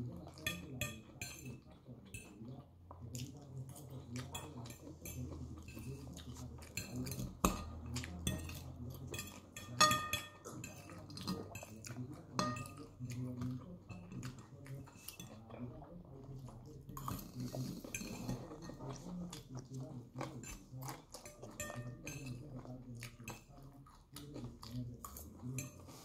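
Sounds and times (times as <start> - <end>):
fork scraping on ceramic plate: 20.3 - 22.4, 25.2 - 26.0.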